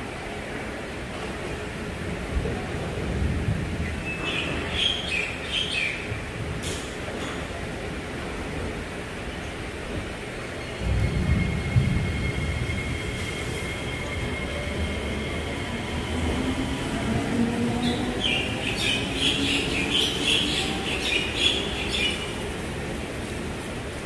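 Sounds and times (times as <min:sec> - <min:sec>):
train rumbling past: 0:00.0 - 0:24.0.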